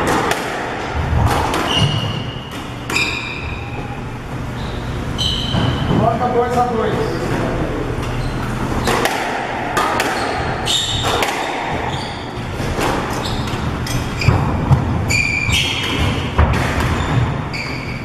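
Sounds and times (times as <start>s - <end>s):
squash ball knocks: 0.0s - 3.1s, 8.8s - 11.9s, 12.6s - 17.4s
shoes squeaking on wooden floor: 1.6s - 6.7s, 8.0s - 9.0s, 10.1s - 18.0s.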